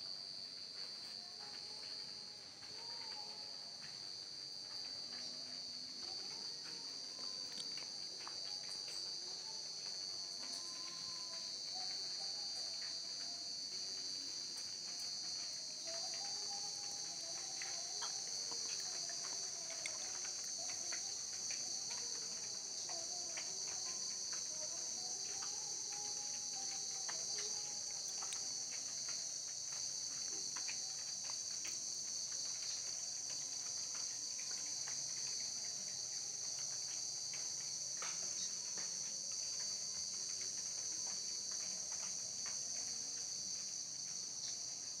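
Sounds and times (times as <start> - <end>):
night insects chirring: 0.0 - 45.0.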